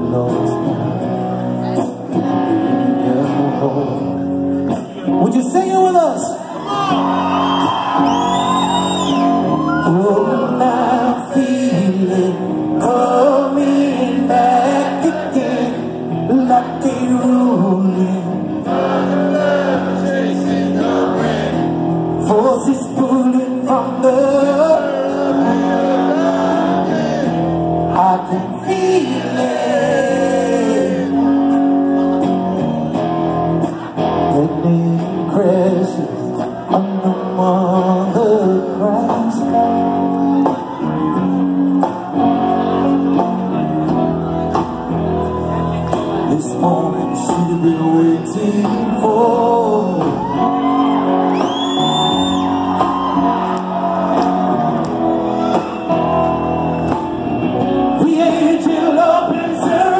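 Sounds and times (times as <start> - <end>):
man singing: 0.0 - 7.0, 9.6 - 21.6, 22.2 - 31.6, 34.2 - 40.1, 46.1 - 50.9, 57.8 - 59.9
electric guitars: 0.0 - 59.9
live rock band: 0.0 - 59.9.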